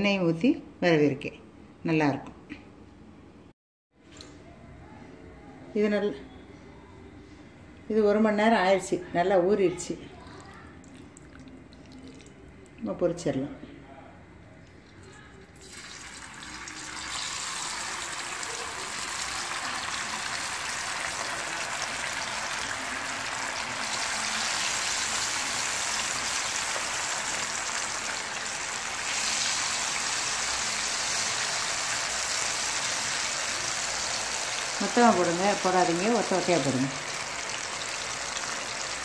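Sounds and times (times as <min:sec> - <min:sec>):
chicken deep-frying in hot oil: 0:15.0 - 0:39.0.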